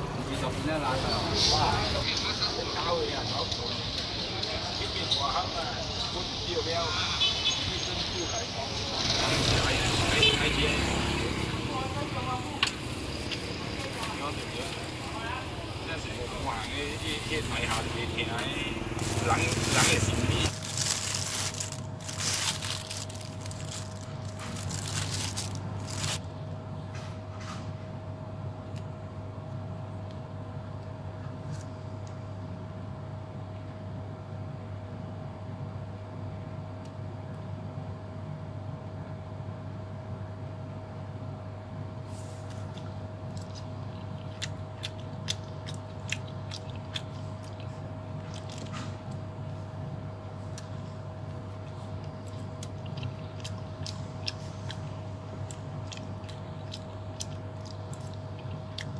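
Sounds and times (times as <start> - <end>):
plastic bag crinkling: 18.9 - 26.2.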